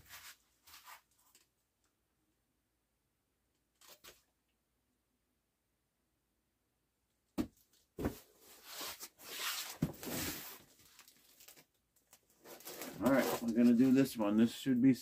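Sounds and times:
cardboard box thump: 0:07.4 - 0:08.2, 0:09.8 - 0:10.3
cardboard scraping and rustling: 0:08.0 - 0:11.1, 0:12.4 - 0:14.0.

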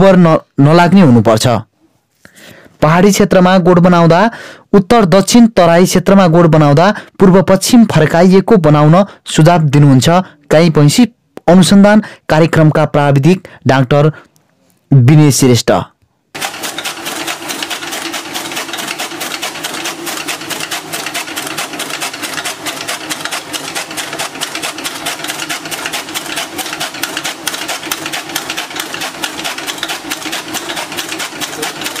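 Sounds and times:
chaff cutter blades clattering: 0:16.4 - 0:32.0.

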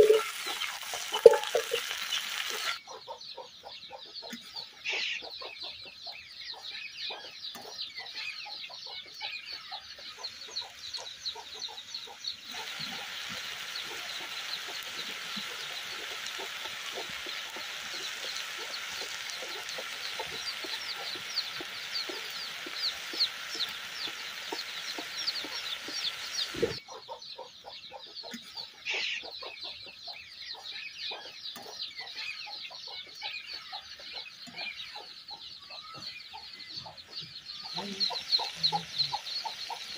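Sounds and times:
fish frying in oil sizzling: 0:00.0 - 0:02.8, 0:10.2 - 0:26.8, 0:37.5 - 0:39.9
chickens clucking: 0:00.0 - 0:39.9.

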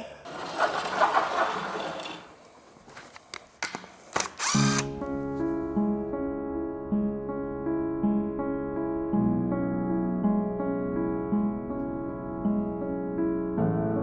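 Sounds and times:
chainsaw running: 0:04.4 - 0:05.0
gentle piano music: 0:04.8 - 0:14.0.

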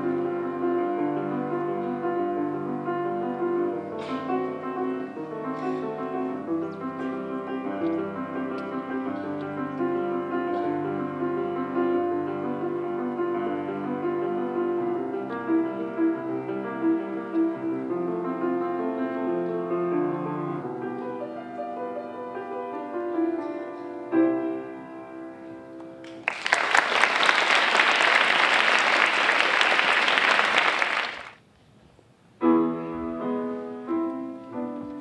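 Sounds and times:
grand piano playing: 0:00.0 - 0:26.3, 0:32.4 - 0:35.0
audience applause: 0:26.0 - 0:31.4.

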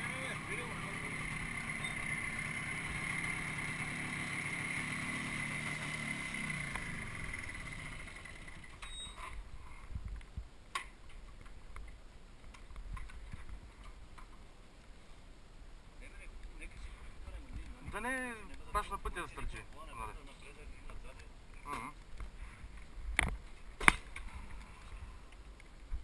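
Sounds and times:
scooter engine whining: 0:00.0 - 0:08.9.

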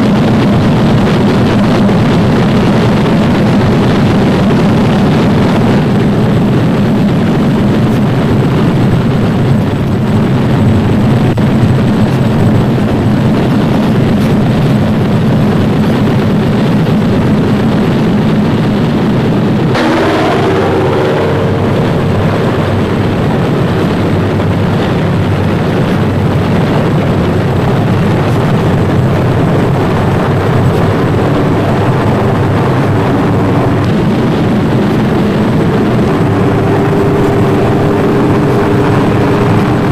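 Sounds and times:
piston aircraft engines running: 0:00.0 - 0:39.9
engine note shifting in pitch: 0:19.7 - 0:26.4, 0:27.7 - 0:39.9.

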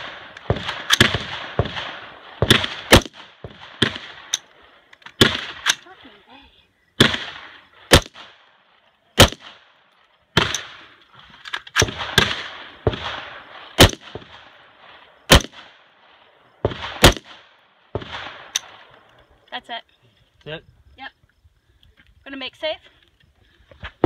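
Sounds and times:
rifle shots with echo: 0:00.0 - 0:04.6, 0:05.2 - 0:05.8, 0:07.0 - 0:09.8, 0:10.4 - 0:10.9, 0:11.8 - 0:18.9.

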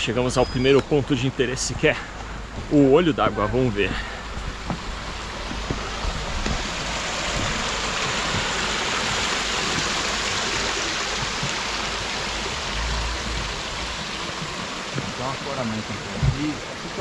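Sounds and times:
flowing water rushing: 0:00.0 - 0:17.0.

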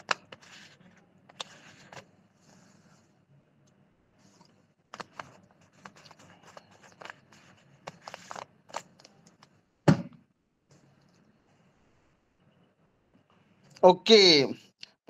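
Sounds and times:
handling clicks and rustles: 0:04.4 - 0:09.6.

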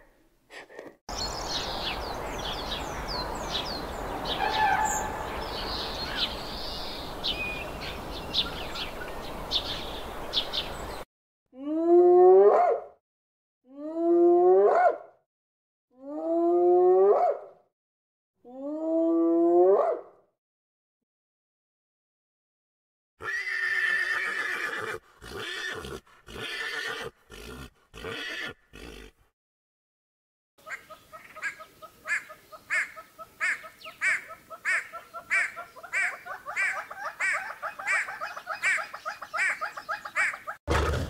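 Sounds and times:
horse whinnying: 0:23.2 - 0:29.1
hornbills calling: 0:30.6 - 0:40.6.

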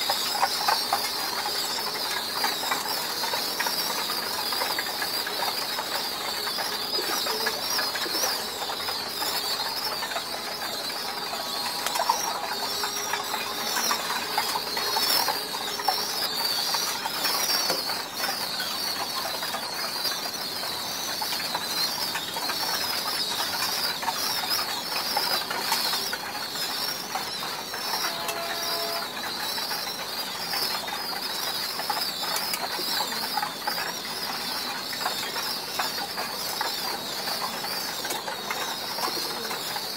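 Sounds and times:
high-pitched pigeon chirping: 0:00.0 - 0:39.9.

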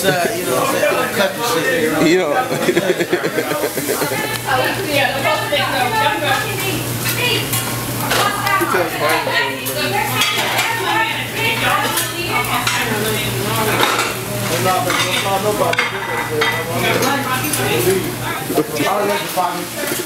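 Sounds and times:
overlapping voices: 0:00.0 - 0:15.0
food sizzling on grill: 0:00.0 - 0:20.0
cutlery and dishes clinking: 0:09.0 - 0:10.9, 0:11.7 - 0:18.0.

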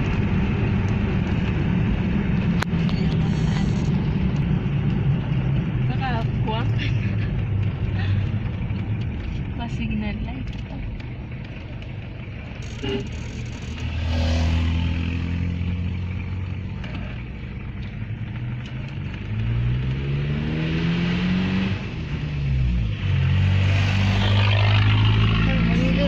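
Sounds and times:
vehicle engine running: 0:00.0 - 0:26.0
truck passing by: 0:12.6 - 0:16.5, 0:19.5 - 0:26.0.

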